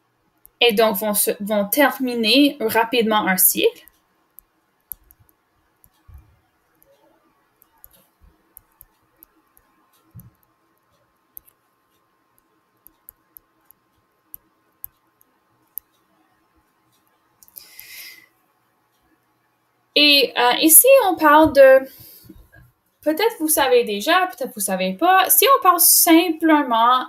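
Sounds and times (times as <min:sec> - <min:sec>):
faint steady hum: 0:00.0 - 0:27.0
stylus clicks and taps: 0:03.8 - 0:07.0, 0:07.6 - 0:16.0, 0:16.6 - 0:18.0
soft low thumps: 0:06.1 - 0:06.4.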